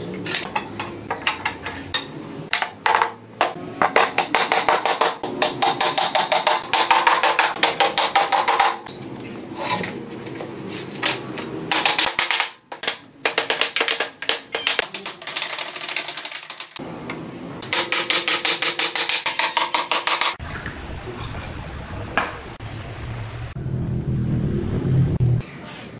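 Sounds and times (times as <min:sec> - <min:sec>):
low rumble: 0:20.4 - 0:25.4.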